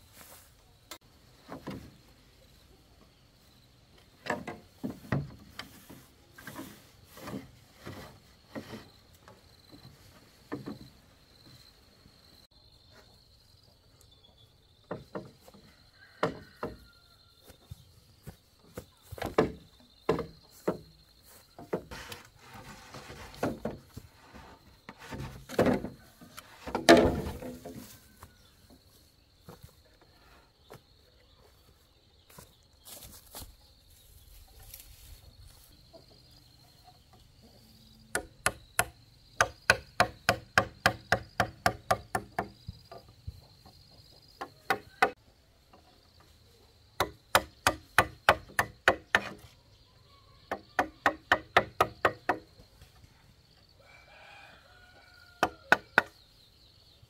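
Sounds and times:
bamboo knocking and clattering: 0.9s - 2.1s, 3.9s - 11.0s, 14.8s - 24.1s, 24.8s - 29.7s, 38.1s - 46.4s, 47.0s - 49.6s, 50.5s - 53.0s, 55.3s - 56.2s.

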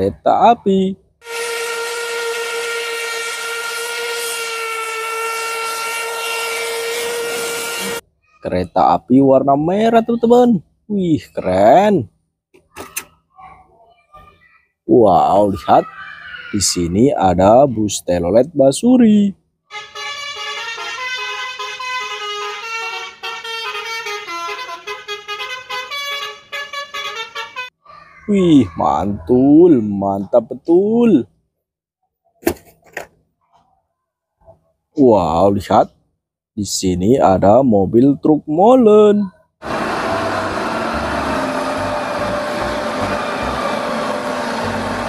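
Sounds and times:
bus horn playing a tune: 1.2s - 8.0s, 19.7s - 27.8s, 39.6s - 45.0s
steam locomotive whistle: 1.2s - 8.0s, 39.7s - 45.0s.

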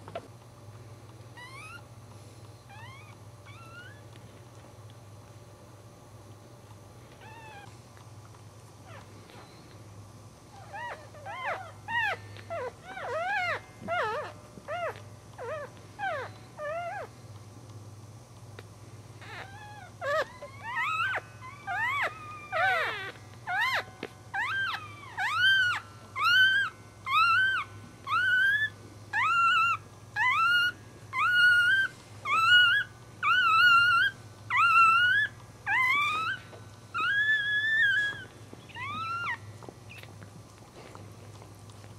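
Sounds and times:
puppies squeaking and mewing: 1.3s - 1.9s, 2.7s - 4.2s, 7.1s - 7.7s, 8.8s - 9.8s, 10.5s - 17.2s, 19.2s - 41.9s.

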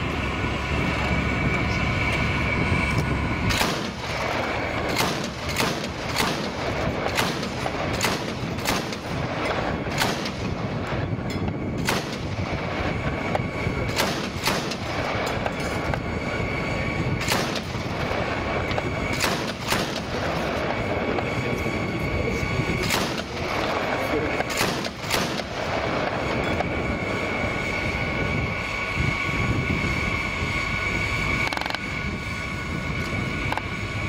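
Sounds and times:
steady background noise: 0.0s - 34.0s
heavy gunshots: 3.5s - 11.2s, 11.8s - 13.0s, 13.8s - 15.6s, 17.2s - 18.4s, 19.0s - 20.9s, 22.8s - 26.2s.

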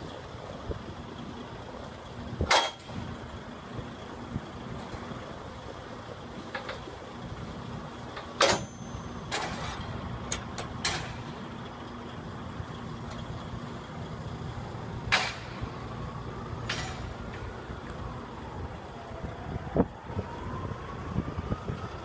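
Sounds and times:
low engine hum: 0.0s - 22.0s
metal lever clanking: 8.3s - 11.2s.

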